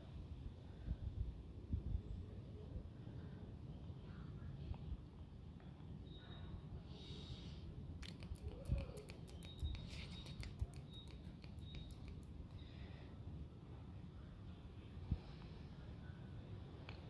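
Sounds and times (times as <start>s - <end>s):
low outdoor rumble: 0.0s - 17.0s
quick clicks: 8.0s - 12.6s
hand stroking cat fur: 9.0s - 12.2s.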